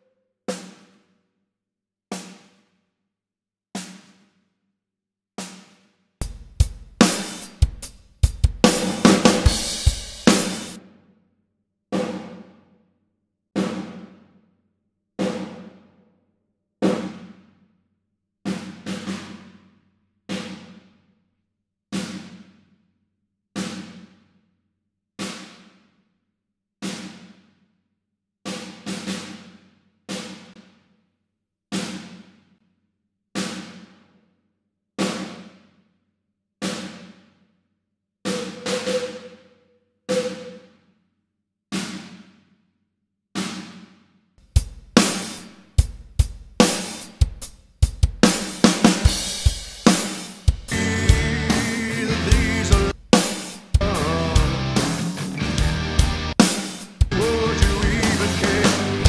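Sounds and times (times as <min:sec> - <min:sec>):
snare drum hits: 0:08.5 - 0:10.8, 0:45.0 - 0:45.6, 0:46.6 - 0:47.2, 0:48.1 - 0:50.8, 0:53.2 - 0:53.8, 0:56.3 - 0:59.0.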